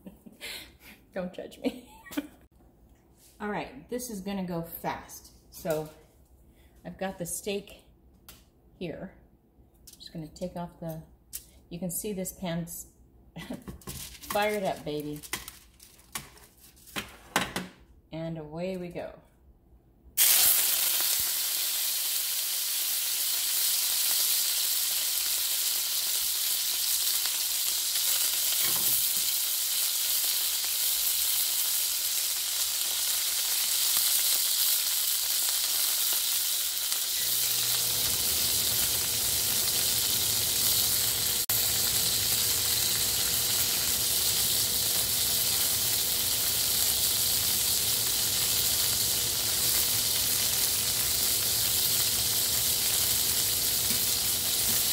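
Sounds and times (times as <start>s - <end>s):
steak sizzling in skillet: 20.2s - 54.9s.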